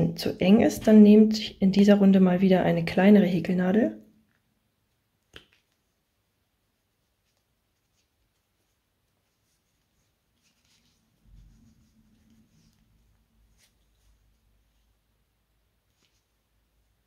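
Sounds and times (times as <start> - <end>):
crochet hook rustling cord: 4.3 - 17.0.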